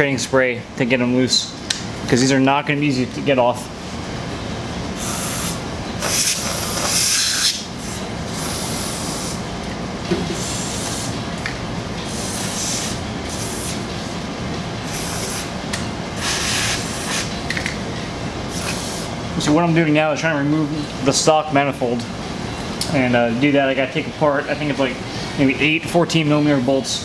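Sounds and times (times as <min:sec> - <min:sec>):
aerosol spray hissing: 0:12.1 - 0:13.8, 0:16.2 - 0:17.3.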